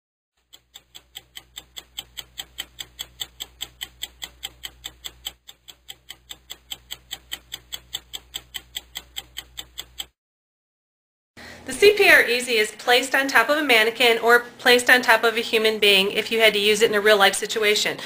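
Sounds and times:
rapid ticking: 0.4 - 10.2.

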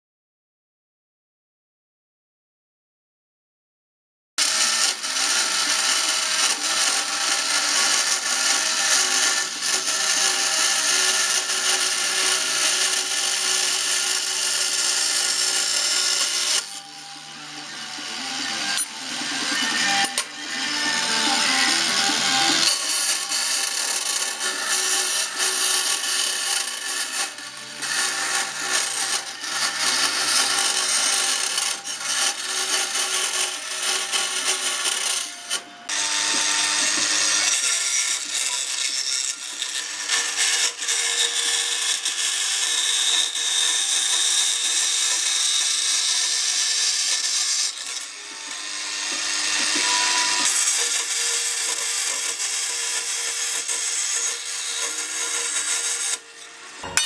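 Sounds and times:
band saw cutting sheet steel: 4.4 - 57.0.

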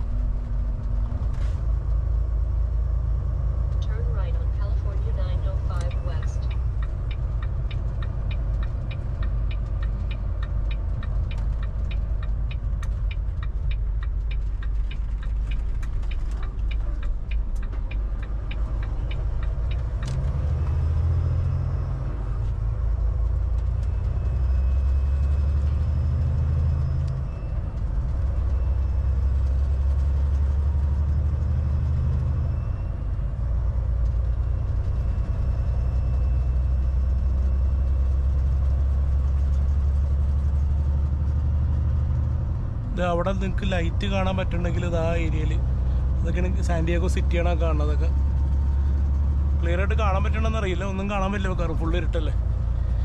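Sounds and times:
truck diesel engine drone: 0.0 - 53.0
steady ticking: 3.9 - 21.8.

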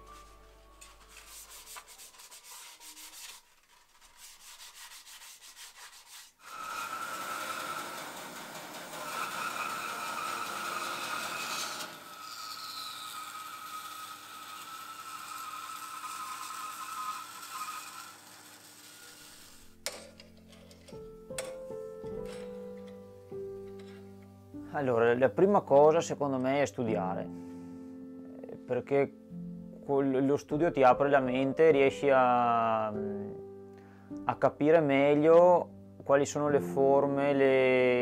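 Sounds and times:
belt sander rasping on wood: 1.3 - 19.6
bandsaw cutting board whining: 6.4 - 19.7.

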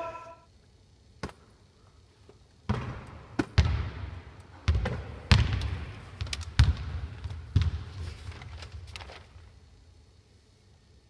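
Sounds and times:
volleyball struck by hand: 2.7 - 7.9
ball bouncing on hard floor: 2.7 - 8.0.

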